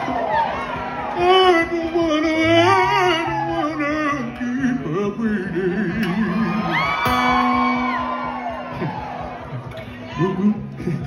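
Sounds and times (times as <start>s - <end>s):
acoustic guitar: 0.0s - 11.0s
man singing: 1.1s - 7.5s, 10.0s - 11.0s.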